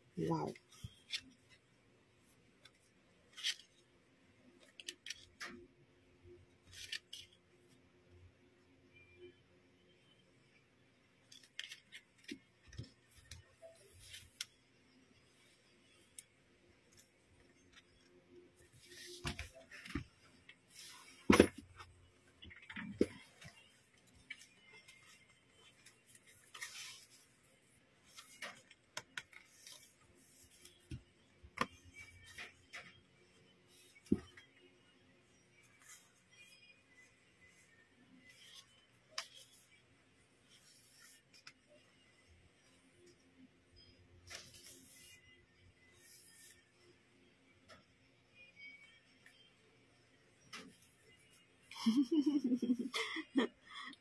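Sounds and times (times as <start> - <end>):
pages being turned: 2.6 - 3.8, 6.6 - 7.4, 11.3 - 14.6, 23.1 - 27.2.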